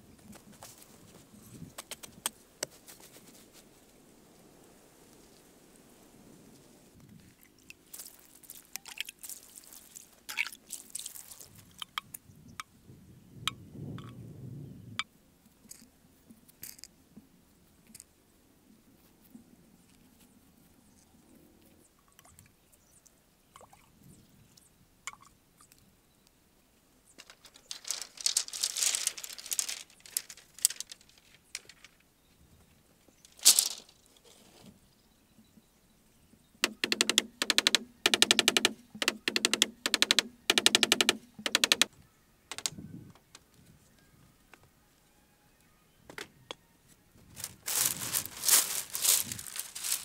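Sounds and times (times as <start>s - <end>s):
fingers rustling in soil: 0.2s - 4.0s, 6.6s - 11.8s, 27.1s - 32.1s, 33.1s - 34.8s, 47.3s - 50.0s
bamboo poles clattering: 27.2s - 32.0s, 33.3s - 34.7s, 36.6s - 41.9s, 42.5s - 42.7s, 47.4s - 50.0s.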